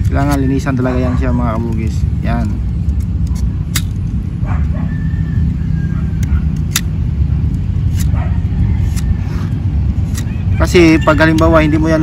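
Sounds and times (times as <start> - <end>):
steady low rumble: 0.0 - 12.0
blade scraping a stem: 7.8 - 11.5.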